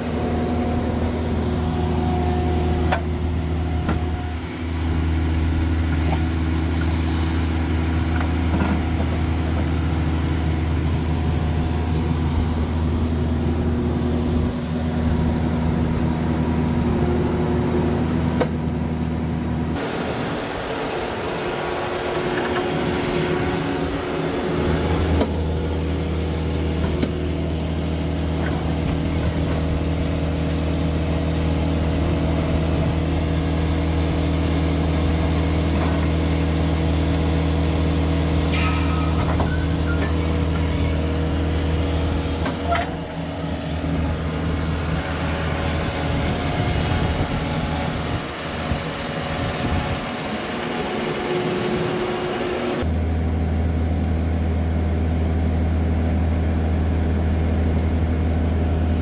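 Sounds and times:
diesel engine droning: 0.0 - 59.0
brief hiss: 38.5 - 39.4.

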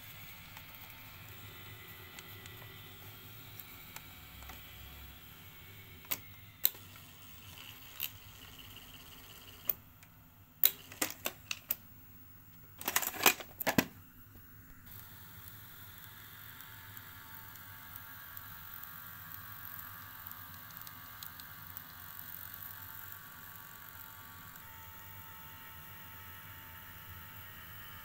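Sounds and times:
vcr keys and tape mechanism clicking: 10.6 - 11.8, 12.8 - 13.9.

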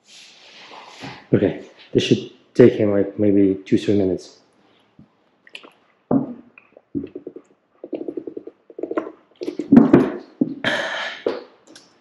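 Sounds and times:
person gulping water: 5.4 - 11.9.

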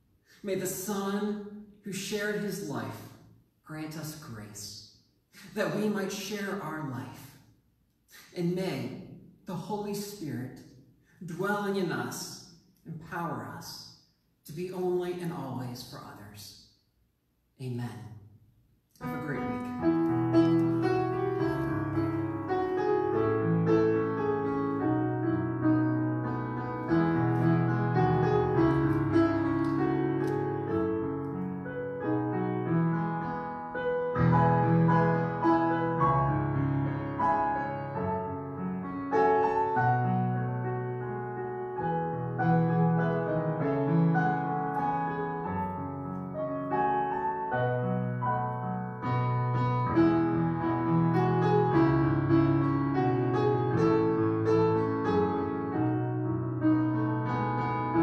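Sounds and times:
slow piano chords with melody: 19.0 - 58.0.

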